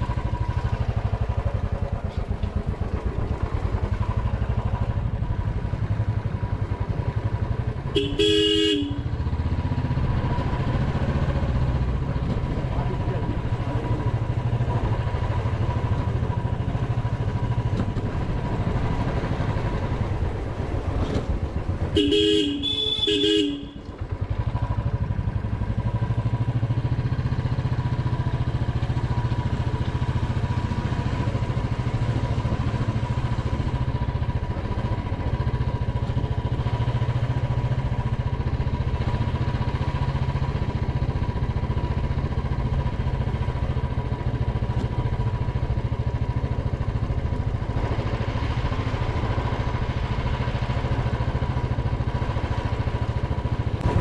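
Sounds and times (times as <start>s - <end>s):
motorcycle engine running: 0.0s - 54.0s
horn honking: 7.8s - 9.3s, 21.9s - 24.0s.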